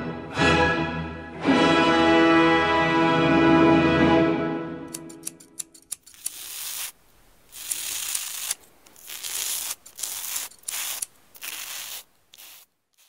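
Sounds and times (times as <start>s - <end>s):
razor scraping through beard: 4.9s - 13.0s.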